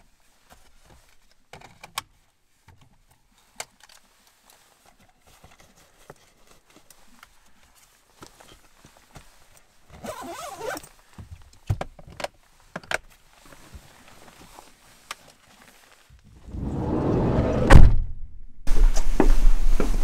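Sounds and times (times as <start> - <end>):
gear rustling in a backpack: 3.8 - 11.2
sliding van door slamming shut: 16.5 - 18.0.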